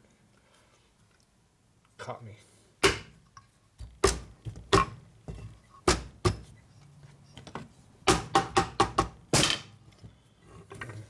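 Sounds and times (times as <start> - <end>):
sharp knocks on metal crankcase: 8.1 - 9.7.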